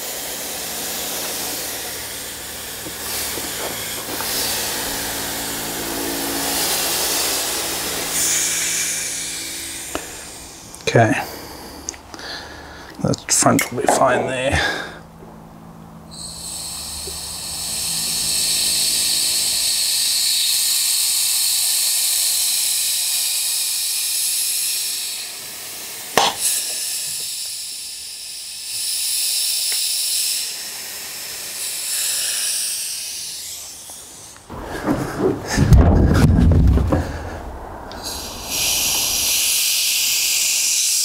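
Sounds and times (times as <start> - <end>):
air-powered sealant gun hissing: 0.0 - 13.0, 16.0 - 34.6, 37.9 - 41.0
sharp click: 26.2 - 26.4.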